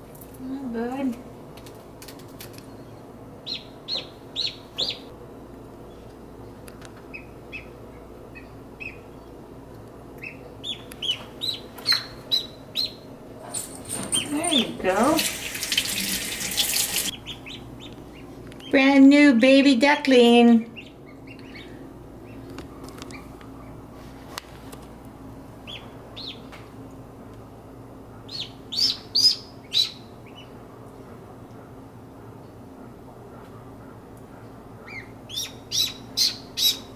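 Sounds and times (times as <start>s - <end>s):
duckling peeping: 2.8s - 5.1s, 7.1s - 9.4s, 10.2s - 13.1s, 17.1s - 18.9s, 20.6s - 23.8s, 25.6s - 26.5s, 28.2s - 30.6s, 34.8s - 36.9s.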